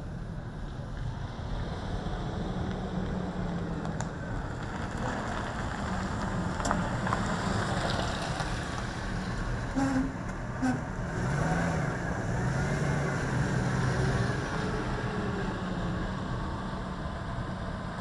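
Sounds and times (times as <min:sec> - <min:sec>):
tyre noise on asphalt: 0:02.7 - 0:10.8.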